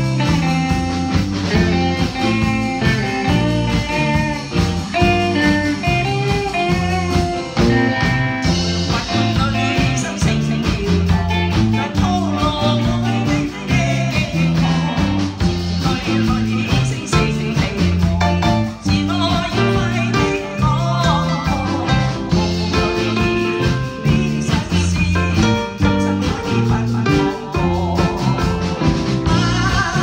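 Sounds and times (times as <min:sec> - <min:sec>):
electric guitar lines: 0:00.0 - 0:17.3
bass: 0:00.0 - 0:30.0
steady drum beat: 0:00.0 - 0:30.0.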